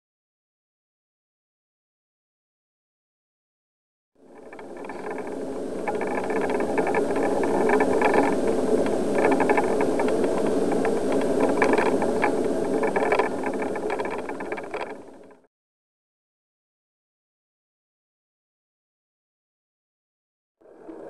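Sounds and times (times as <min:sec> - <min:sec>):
bicycle rolling rumble: 0:04.2 - 0:15.5, 0:20.6 - 0:21.0
rattling clicks of bike: 0:04.3 - 0:15.4.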